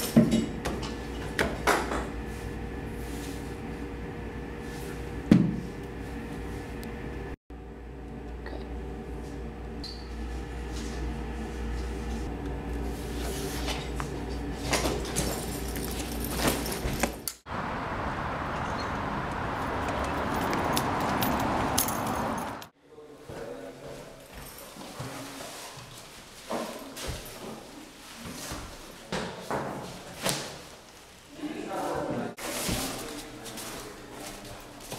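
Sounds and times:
low room hum: 0.0s - 17.4s.

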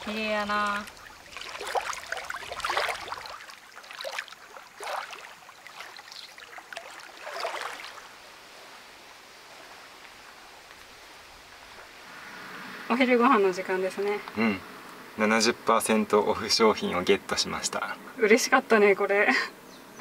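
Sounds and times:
waves lapping on pebble shore: 0.0s - 8.2s
faint steady hiss: 0.0s - 20.0s.

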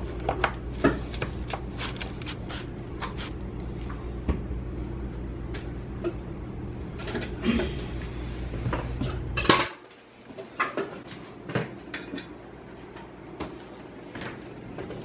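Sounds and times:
knife cutting crispy pizza: 0.0s - 3.4s.

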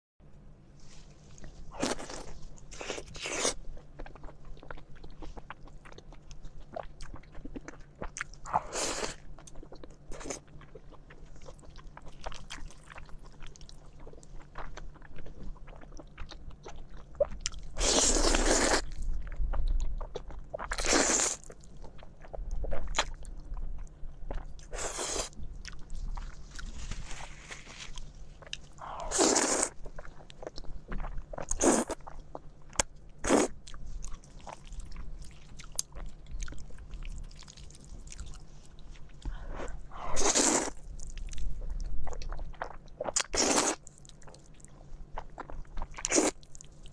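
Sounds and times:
noodle slurping: 29.0s - 29.8s, 40.1s - 40.8s.

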